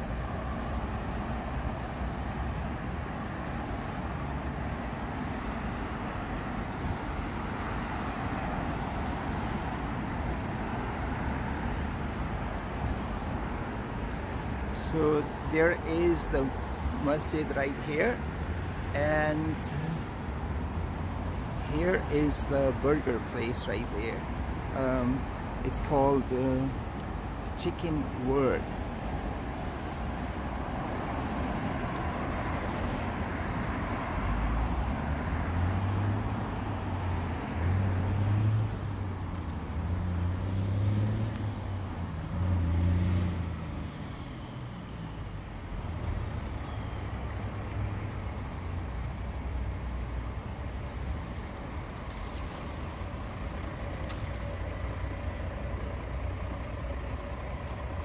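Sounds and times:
street traffic passing: 0.0 - 58.0
heavy vehicle engine rumbling: 46.8 - 58.0.

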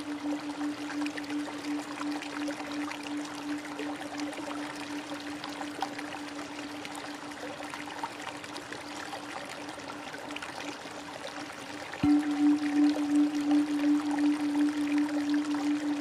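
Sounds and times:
music with pulsing tone: 0.0 - 7.4, 12.0 - 16.0
steady low hum: 0.0 - 7.7, 12.0 - 16.0
stream water flowing: 0.0 - 16.0.

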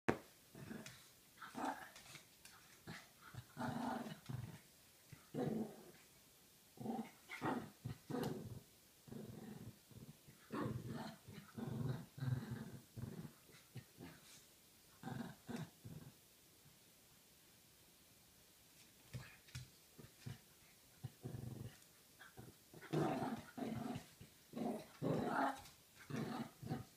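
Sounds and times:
small dogs growling: 0.5 - 4.7, 5.3 - 6.0, 6.8 - 14.4, 15.0 - 16.2, 21.0 - 26.9.

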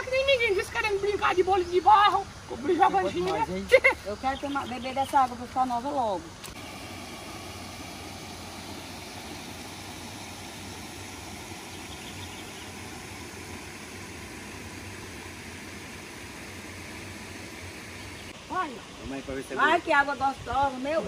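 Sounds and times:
creek water rushing over weir: 6.3 - 21.0.

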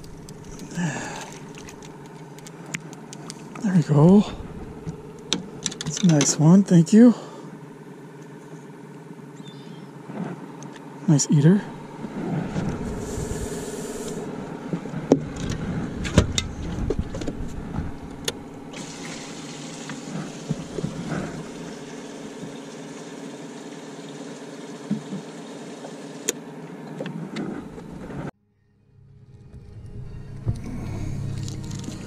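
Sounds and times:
steady motor hum: 0.0 - 28.3, 29.0 - 32.0
knocks and clunks of gear: 4.8 - 6.4, 14.7 - 18.4.

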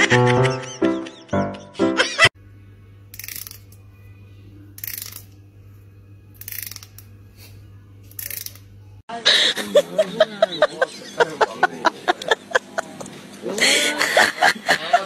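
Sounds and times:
steady low hum: 2.4 - 15.0.

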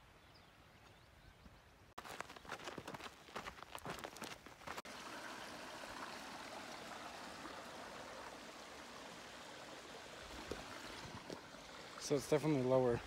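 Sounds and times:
footsteps on dirt trail: 0.8 - 4.8
creek trickling over rocks: 3.7 - 13.0.

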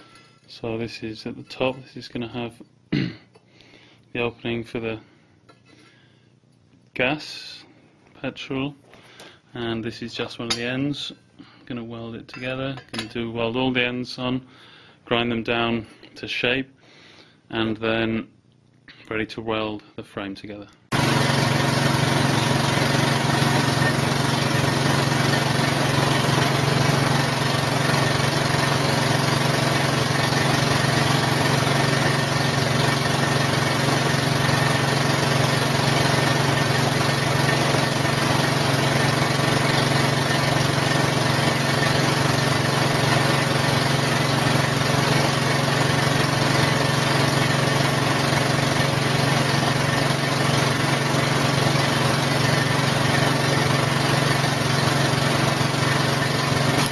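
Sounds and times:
small engine running: 20.9 - 56.9.

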